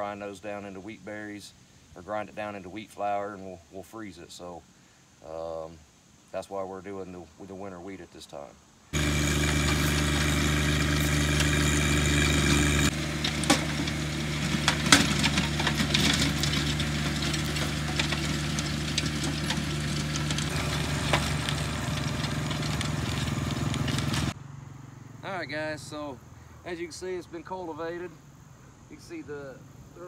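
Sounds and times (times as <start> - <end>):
tractor diesel engine under load: 9.0 - 24.4.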